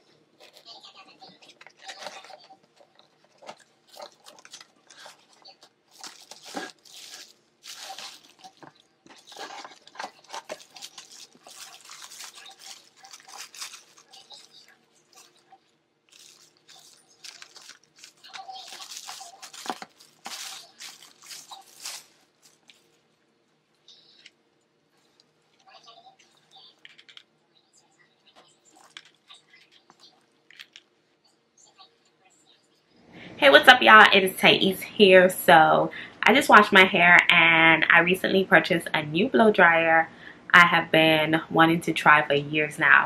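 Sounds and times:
plastic packaging crinkling: 0:00.4 - 0:23.2, 0:25.0 - 0:27.4, 0:28.1 - 0:31.0.

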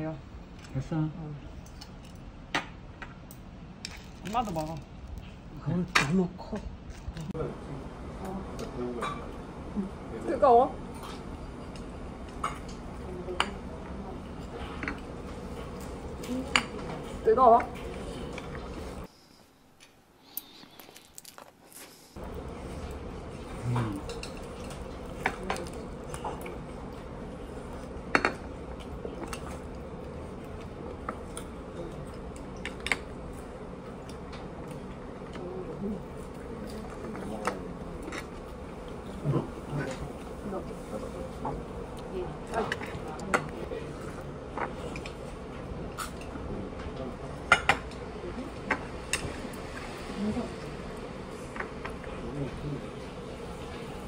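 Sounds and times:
steady background hum: 0:00.0 - 0:54.0
utensils clinking against plates: 0:08.9 - 0:09.4, 0:23.7 - 0:26.5.

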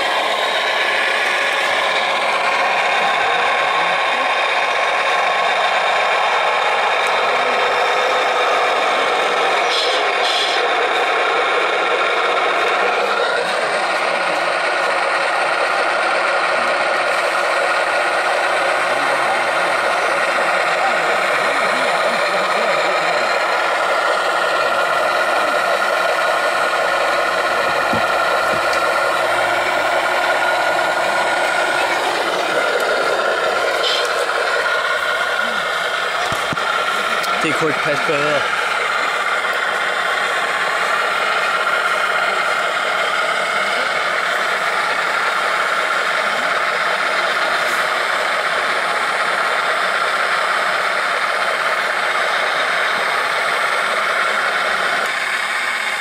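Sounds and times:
electric drive whirring and rattling: 0:23.0 - 0:43.4.

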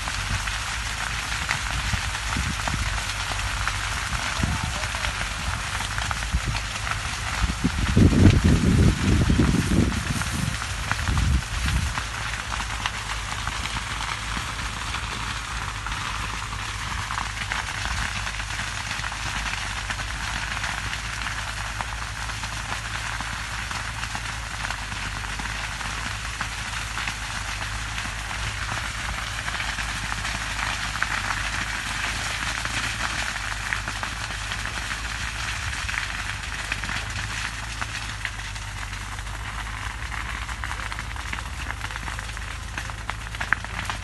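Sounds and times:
crackling of burning cane: 0:00.0 - 0:44.0
low rumble: 0:01.5 - 0:19.2.

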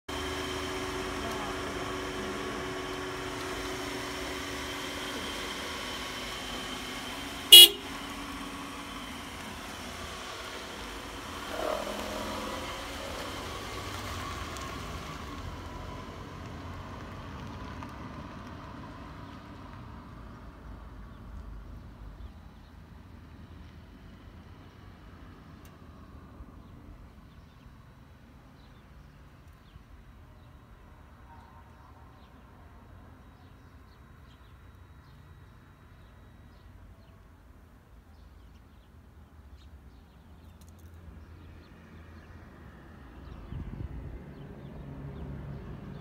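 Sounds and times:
street background hum: 0:00.0 - 0:46.0
car horn toot: 0:07.5 - 0:08.0.

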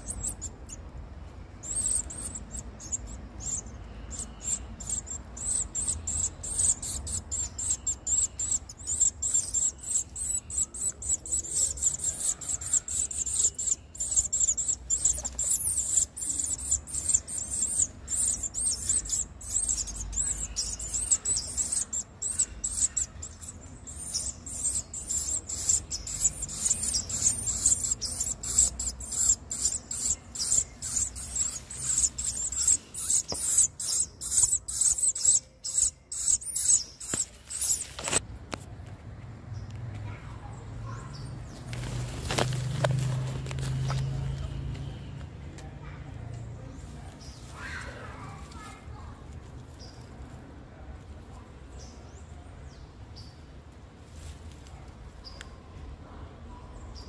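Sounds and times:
nestlings cheeping: 0:00.0 - 0:38.2.

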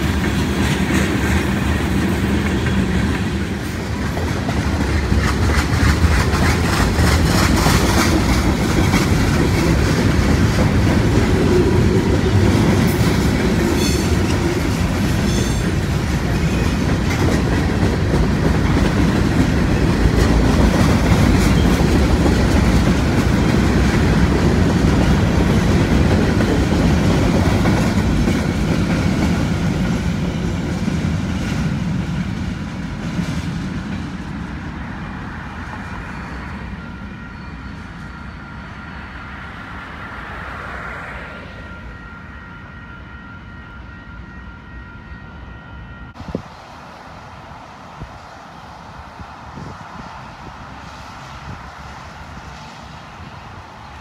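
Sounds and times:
clacking over rail joints: 0:00.0 - 0:34.3
freight train wheels rumbling: 0:00.0 - 0:54.0
high wheel squeals: 0:36.0 - 0:39.5.

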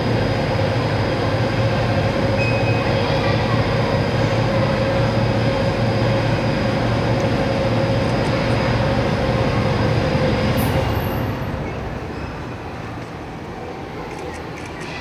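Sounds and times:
crane hoist humming: 0:00.0 - 0:15.0.

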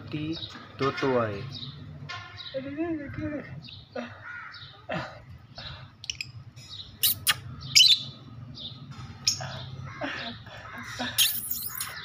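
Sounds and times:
lovebirds chirping: 0:00.1 - 0:12.0
shrill bird squawks: 0:07.0 - 0:08.1, 0:10.8 - 0:12.0.

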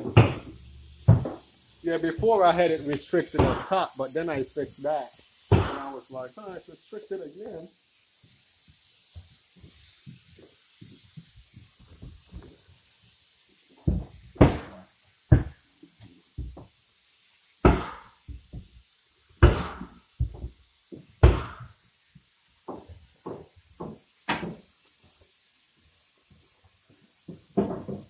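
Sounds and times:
loud sharp knocks: 0:00.0 - 0:00.5, 0:03.4 - 0:03.7, 0:05.5 - 0:05.9, 0:13.9 - 0:15.5, 0:17.6 - 0:18.1, 0:19.4 - 0:19.9, 0:21.2 - 0:21.7, 0:24.3 - 0:24.6.

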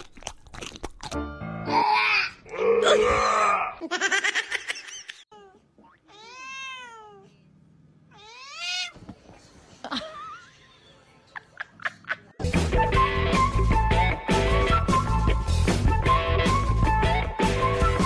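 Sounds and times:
cats meowing: 0:05.4 - 0:07.4, 0:08.1 - 0:09.0.

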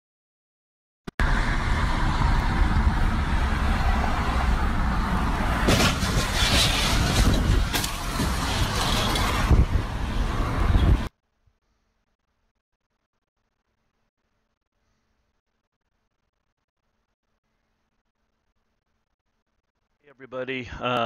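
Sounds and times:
car road noise rumble: 0:01.2 - 0:11.2.

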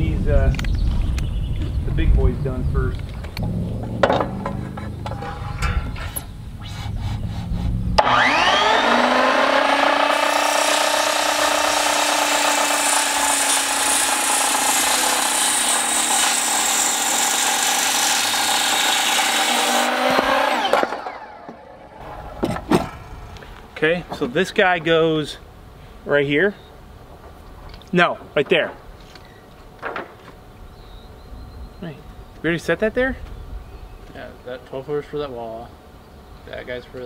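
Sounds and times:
low rumble: 0:00.0 - 0:08.0, 0:21.7 - 0:24.1
knocks: 0:03.8 - 0:06.2
circular saw cutting wood: 0:04.2 - 0:23.5.

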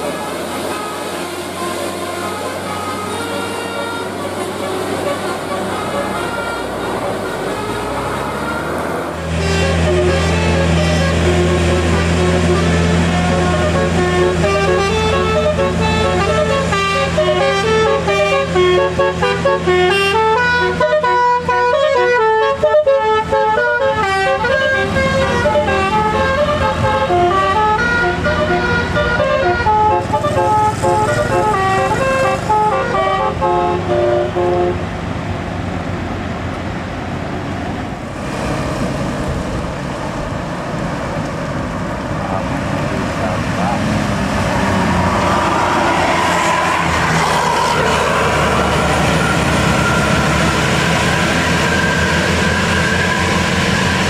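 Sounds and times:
musical horn playing a tune: 0:00.0 - 0:34.9
passing traffic: 0:00.0 - 0:54.0.

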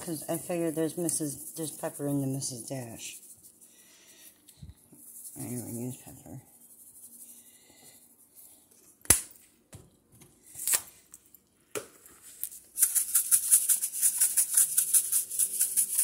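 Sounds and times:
spice shaker rattling: 0:12.4 - 0:16.0.

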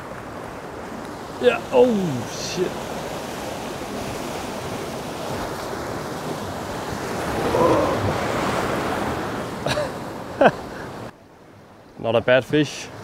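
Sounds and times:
surf breaking on rocks: 0:01.3 - 0:09.6.

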